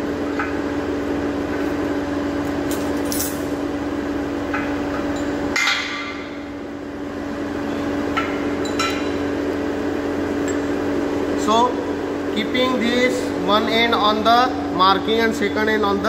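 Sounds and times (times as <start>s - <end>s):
machine hum: 0.0s - 16.0s
metallic clank with ring: 2.7s - 3.5s, 8.2s - 9.2s.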